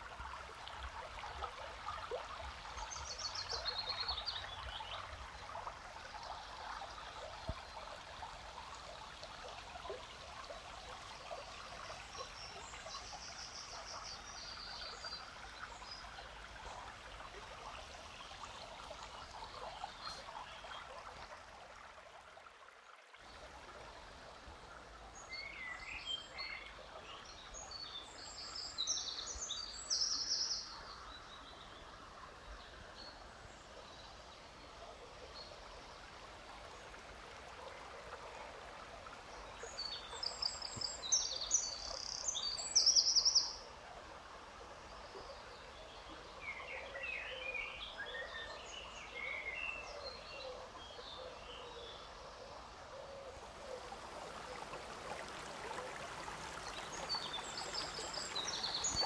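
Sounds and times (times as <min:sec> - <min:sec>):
stream running: 0:00.0 - 0:59.0
songbirds chirping: 0:23.3 - 0:59.0.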